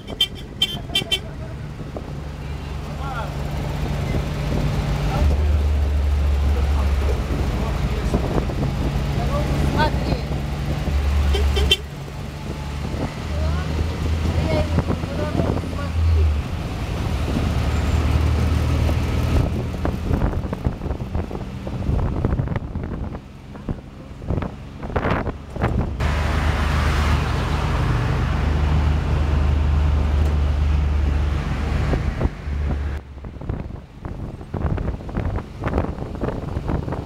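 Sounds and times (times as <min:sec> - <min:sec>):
passing road traffic: 0:00.0 - 0:37.0
wind buffeting microphone: 0:03.4 - 0:26.1, 0:31.0 - 0:37.0.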